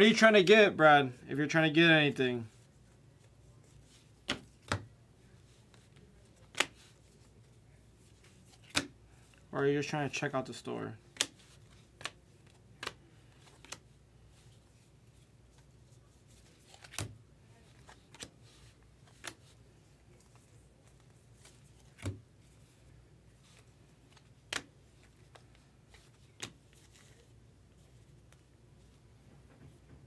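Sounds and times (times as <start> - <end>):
cards flipping with sharp clicks: 3.8 - 4.9, 5.5 - 7.3, 8.2 - 9.4, 11.1 - 14.0, 16.3 - 22.2, 23.4 - 28.4.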